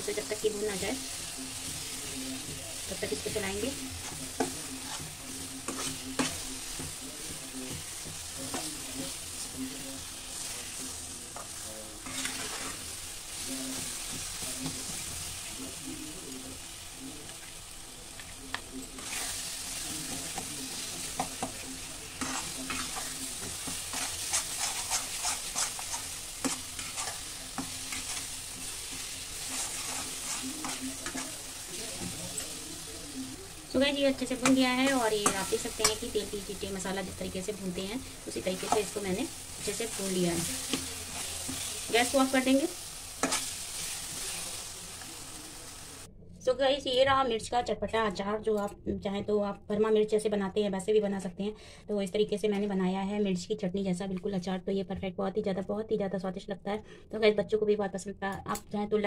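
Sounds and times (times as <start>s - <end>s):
spatula scraping pan: 0.0s - 15.3s, 18.9s - 32.9s, 34.0s - 45.1s
masala sizzling in oil: 0.0s - 46.1s.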